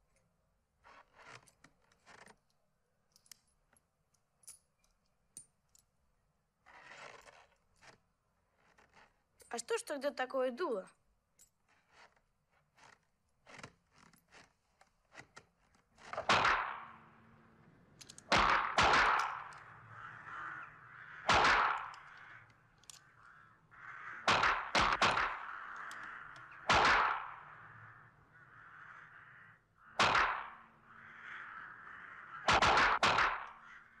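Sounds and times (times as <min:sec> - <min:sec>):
rifle shots echoing: 0:16.2 - 0:17.0, 0:18.2 - 0:19.8, 0:21.2 - 0:22.0, 0:24.2 - 0:25.5, 0:26.6 - 0:27.6, 0:30.0 - 0:30.6, 0:32.5 - 0:33.5.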